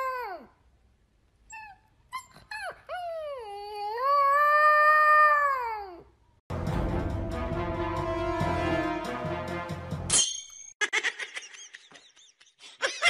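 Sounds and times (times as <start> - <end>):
puppy howling: 1.6 - 6.0
music: 6.5 - 10.1.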